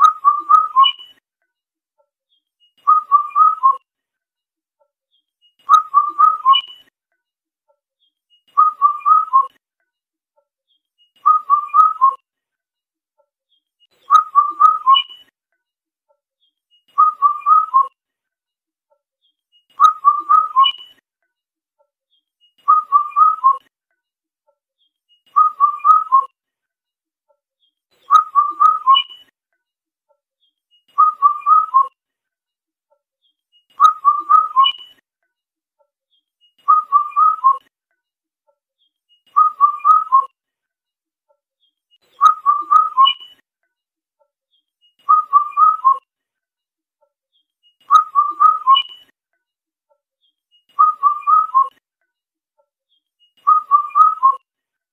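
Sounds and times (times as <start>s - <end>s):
cuckoo whistled call: 2.8s - 3.8s, 5.7s - 6.9s, 8.6s - 9.6s, 11.2s - 12.2s, 14.1s - 15.3s, 17.0s - 18.0s, 19.8s - 21.0s, 22.7s - 23.6s, 25.3s - 26.3s, 28.1s - 29.3s, 31.0s - 32.0s, 33.8s - 35.0s, 36.6s - 37.7s, 39.3s - 40.3s, 42.1s - 43.4s, 45.0s - 46.0s, 47.9s - 49.1s, 50.8s - 51.8s, 53.4s - 54.4s.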